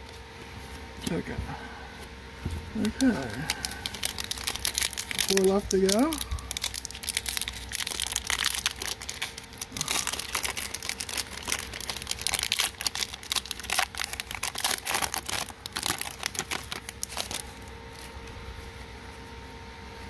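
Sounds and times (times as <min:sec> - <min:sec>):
foil wrapper crinkling and tearing: 0:02.8 - 0:18.4.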